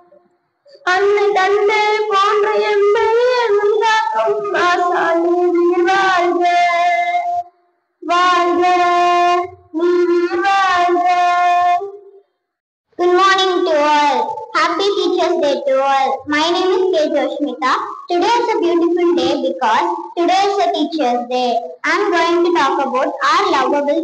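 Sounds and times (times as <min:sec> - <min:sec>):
boy singing into microphone: 0:00.9 - 0:07.4, 0:08.0 - 0:12.1.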